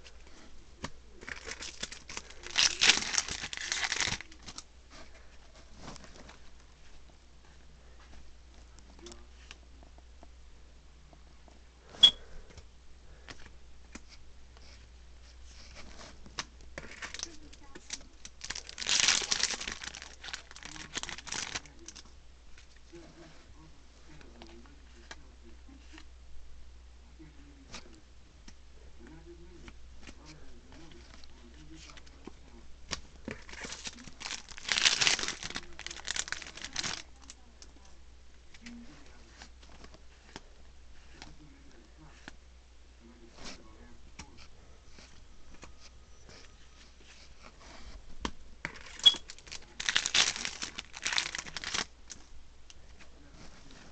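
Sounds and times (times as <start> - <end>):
trading cards crinkling and rustling: 0.0 - 7.1, 15.4 - 23.3, 29.6 - 37.9, 38.5 - 42.4, 43.3 - 53.9
low steady hum: 0.0 - 53.9.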